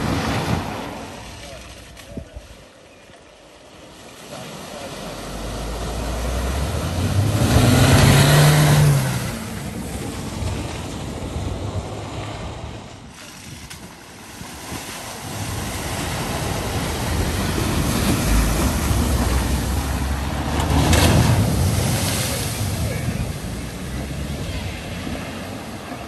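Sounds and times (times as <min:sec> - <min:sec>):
wheels rushing through water: 0:00.0 - 0:26.0
car engine revving: 0:04.5 - 0:12.5, 0:15.4 - 0:26.0.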